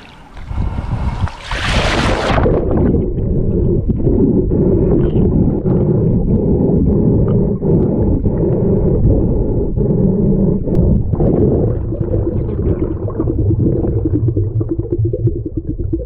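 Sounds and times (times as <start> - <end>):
underwater low rumble: 0.0 - 16.0
splash into water: 1.3 - 2.7.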